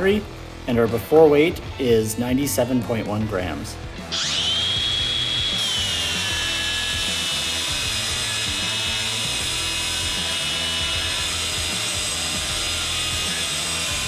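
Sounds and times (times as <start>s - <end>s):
angle grinder grinding steel: 4.0s - 14.0s.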